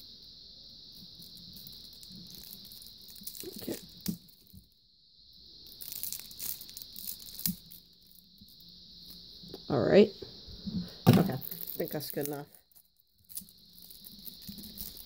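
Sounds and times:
plastic wrapping crinkling: 1.1s - 4.8s, 5.6s - 9.2s, 11.1s - 15.0s.

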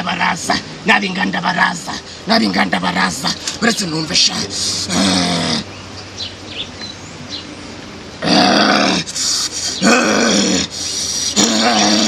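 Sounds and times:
man's deep wordless vocal bursts: 4.2s - 5.7s, 8.2s - 12.0s.

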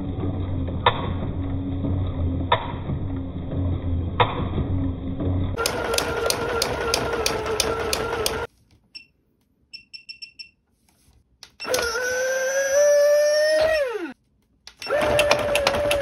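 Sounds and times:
toy motor whining with clicks: 11.6s - 14.1s, 14.7s - 16.0s.

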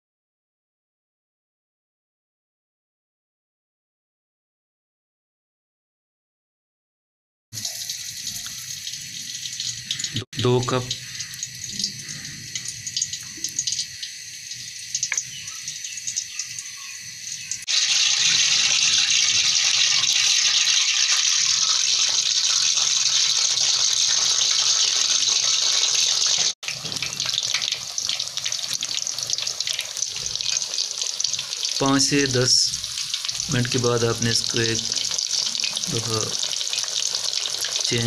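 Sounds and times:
fish sizzling in hot oil: 7.6s - 38.0s
oil pouring into a pan: 17.6s - 37.9s.

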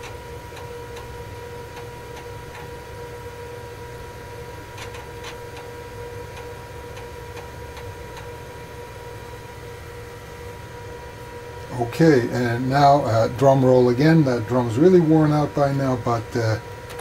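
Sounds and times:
steady hum: 0.0s - 17.0s.

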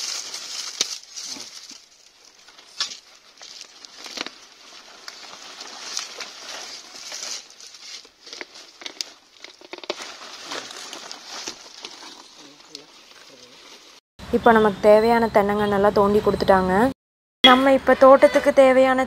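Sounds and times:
dry earth scraping and crumbling: 0.0s - 14.0s
dry fronds rustling: 0.0s - 14.0s.

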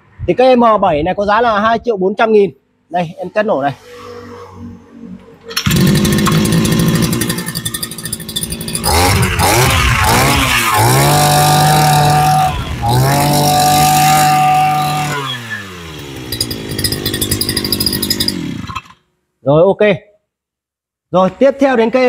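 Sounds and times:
brush cutter engine revving: 5.6s - 19.0s.

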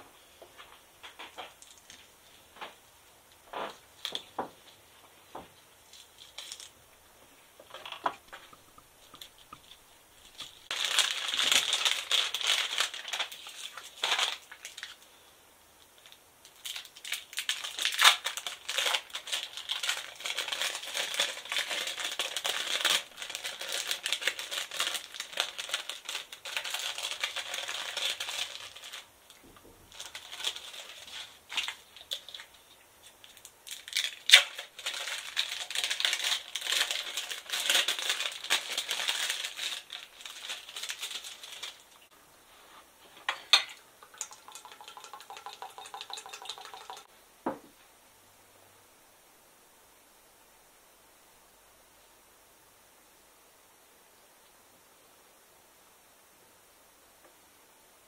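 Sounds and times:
plastic wrapping crinkling: 5.9s - 6.8s, 7.6s - 15.1s, 16.0s - 42.2s.

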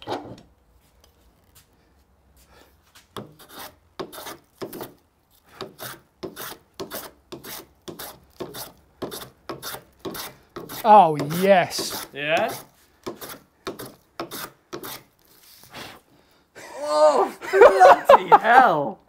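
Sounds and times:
hand plane shaving wood: 3.2s - 15.1s.

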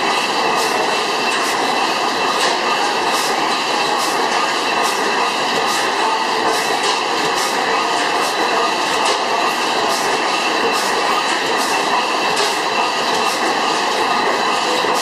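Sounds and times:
stationary gas engine clattering: 0.0s - 15.0s.

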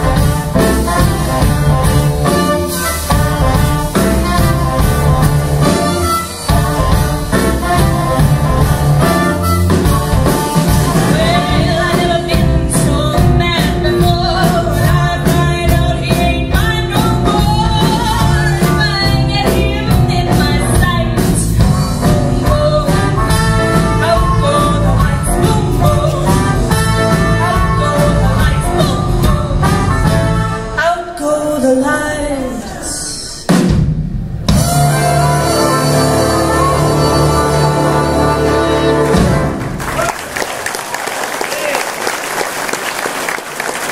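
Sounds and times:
live band playing loudly: 0.0s - 30.8s, 32.9s - 43.9s
woman singing: 11.0s - 30.1s, 30.7s - 33.4s.

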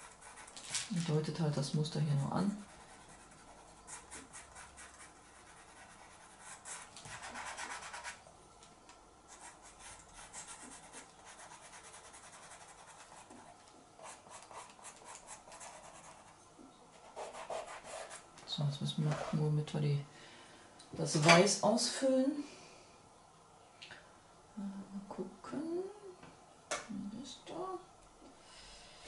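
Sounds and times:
pastel pencil scratching paper: 0.0s - 0.6s, 2.2s - 8.2s, 9.3s - 16.3s, 17.0s - 18.2s.

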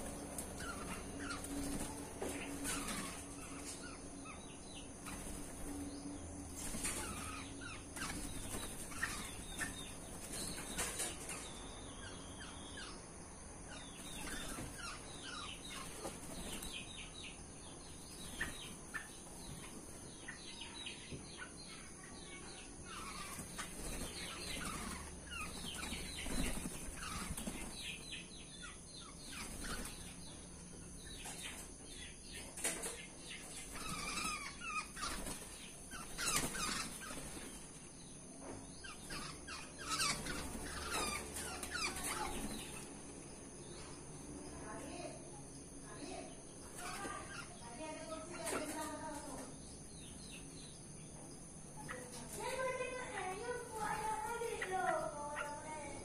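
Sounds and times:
birds flapping wings: 6.6s - 7.4s, 8.0s - 11.1s, 23.2s - 28.0s, 33.6s - 37.7s.

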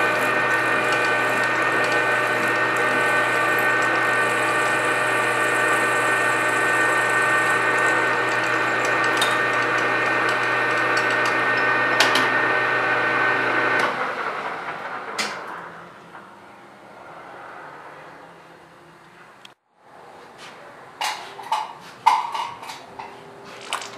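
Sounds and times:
metal lathe whining: 0.0s - 15.8s.

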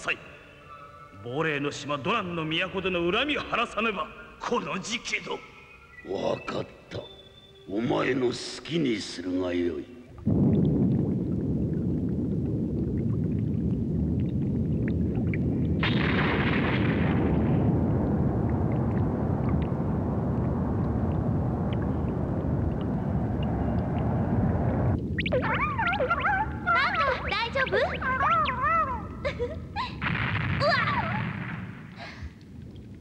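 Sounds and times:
deep continuous rumble: 10.2s - 33.0s.

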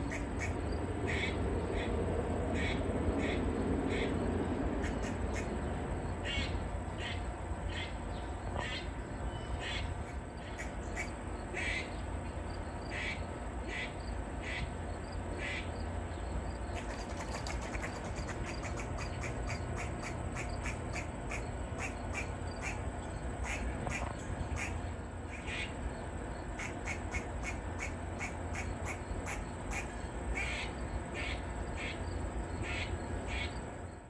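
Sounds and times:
squirrel barking: 6.2s - 11.9s, 18.4s - 25.8s, 26.6s - 33.6s.

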